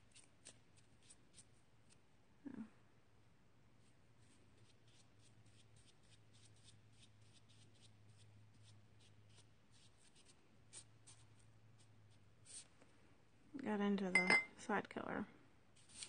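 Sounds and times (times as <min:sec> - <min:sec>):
brush strokes on paper: 0:03.8 - 0:12.8, 0:15.7 - 0:16.0
low steady hum: 0:10.5 - 0:15.7.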